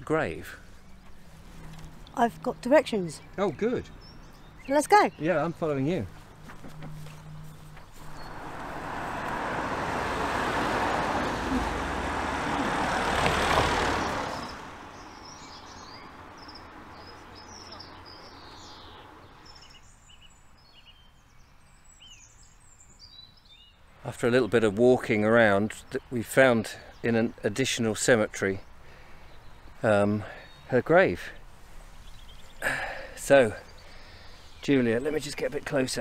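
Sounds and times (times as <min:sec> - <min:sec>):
birds chirping and singing: 0:00.0 - 0:08.7, 0:13.5 - 0:36.0
car passing: 0:05.3 - 0:19.6.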